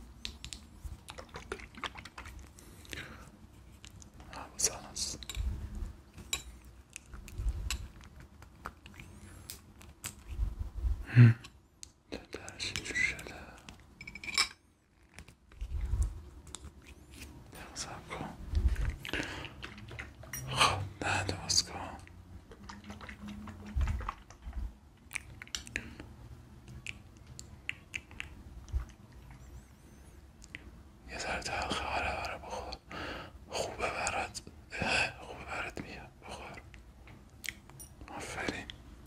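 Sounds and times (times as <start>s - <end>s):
soft wet clicks and taps: 22.0s - 29.2s.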